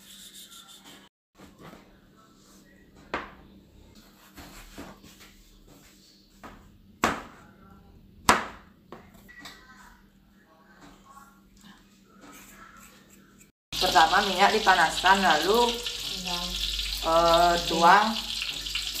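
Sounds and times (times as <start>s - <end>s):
knife chopping on plastic board: 8.2s - 9.1s.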